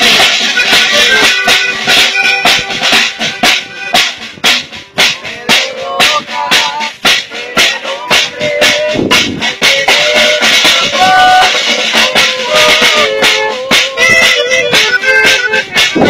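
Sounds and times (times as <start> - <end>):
saxophone: 0.0 - 4.1, 10.0 - 16.0
accordion: 0.0 - 16.0
acoustic guitar: 0.0 - 16.0
drum beat: 0.0 - 16.0.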